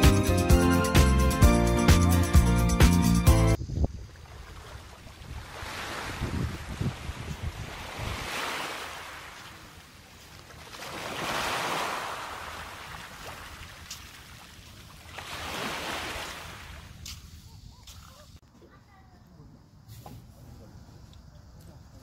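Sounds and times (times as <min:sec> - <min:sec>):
wind: 0:03.5 - 0:22.0
surf: 0:04.4 - 0:16.8.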